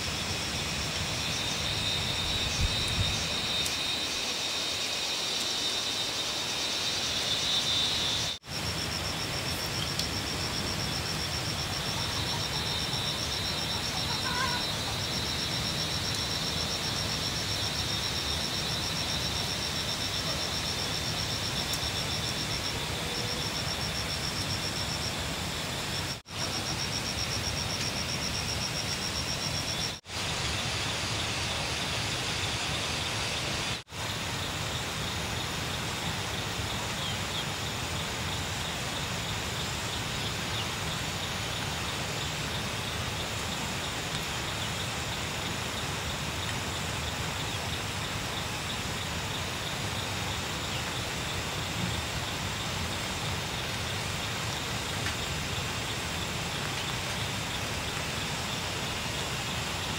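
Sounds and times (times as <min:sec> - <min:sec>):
steady rain hiss: 0:00.0 - 0:59.9.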